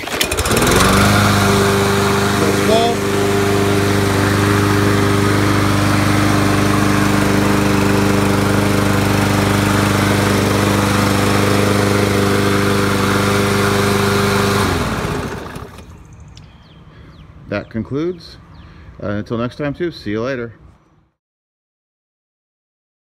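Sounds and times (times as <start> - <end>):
lawn mower engine running: 0.0 - 16.2.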